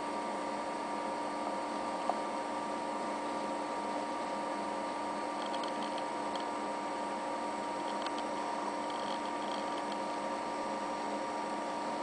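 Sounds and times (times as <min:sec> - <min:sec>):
computer fans humming: 0:00.0 - 0:12.0
hard drive ticking: 0:05.2 - 0:06.7, 0:07.4 - 0:12.0.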